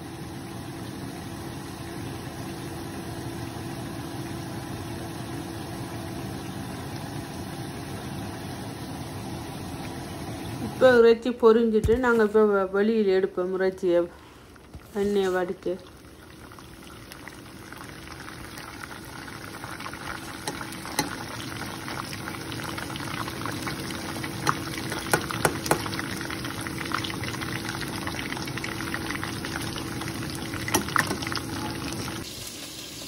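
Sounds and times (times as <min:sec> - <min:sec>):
chicken deep-frying in oil: 0:00.0 - 0:11.0, 0:13.6 - 0:33.0
low steady hum: 0:00.0 - 0:32.2
oil popping and crackling: 0:14.5 - 0:32.3.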